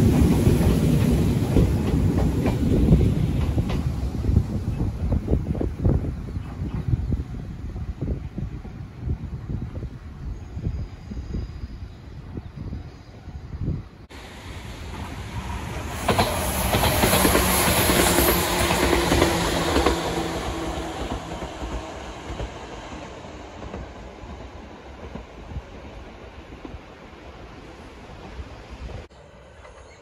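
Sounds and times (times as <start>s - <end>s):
train wheels clicking over rail joints: 0.0s - 4.2s, 14.9s - 26.8s.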